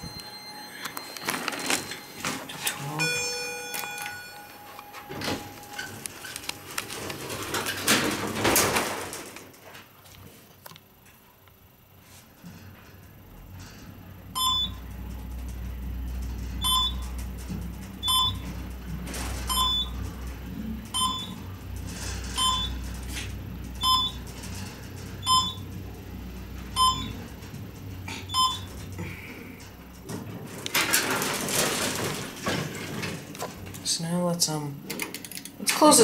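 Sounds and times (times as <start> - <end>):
elevator floor beeps: 0.0 - 6.5, 14.3 - 29.6
elevator car humming: 0.0 - 8.7, 12.4 - 33.8.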